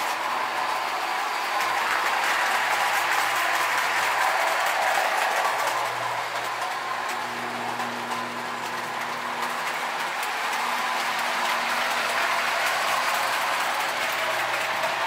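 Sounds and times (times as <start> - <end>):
toy trains whirring and rattling: 0.0 - 15.0.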